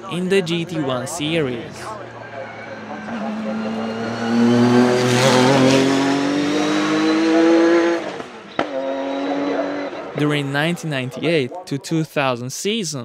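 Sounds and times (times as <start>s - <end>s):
race car engine accelerating: 1.9s - 10.2s.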